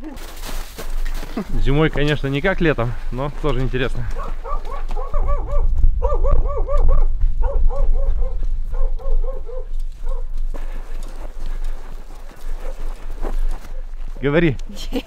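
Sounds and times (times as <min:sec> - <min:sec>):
dog yipping: 0:04.2 - 0:10.3.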